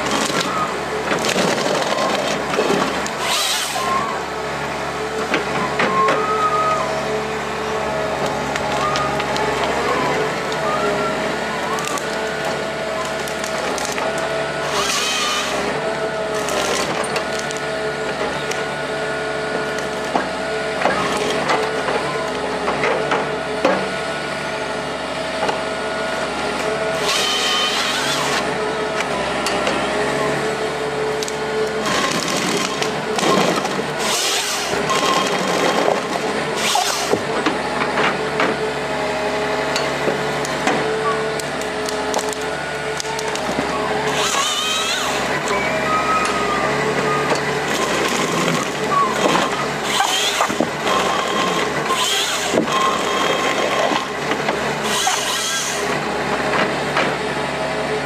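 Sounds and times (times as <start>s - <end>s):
wood cracking and branches splintering: 0.0s - 3.8s, 11.4s - 15.7s, 31.2s - 38.2s, 40.0s - 45.5s
harvester engine and hydraulics whine: 0.0s - 58.0s.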